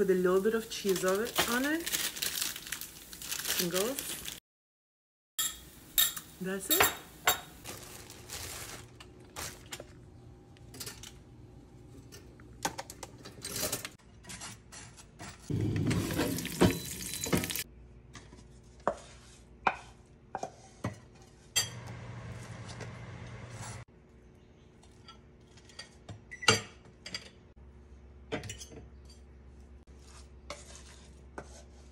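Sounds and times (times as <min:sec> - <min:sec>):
butter knife scraping on bread: 0:29.9 - 0:31.9.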